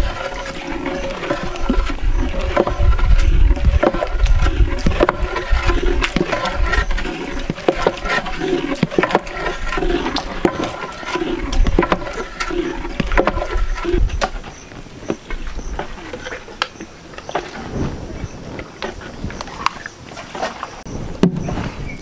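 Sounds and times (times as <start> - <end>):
wet squelching and gurgling: 0.0 - 20.9
paddle knocking metal pot: 1.0 - 14.4.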